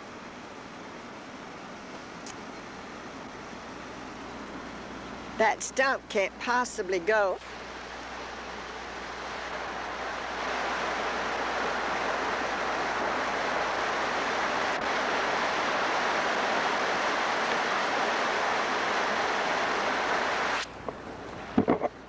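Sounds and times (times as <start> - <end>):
floodwater rushing: 5.2 - 21.6.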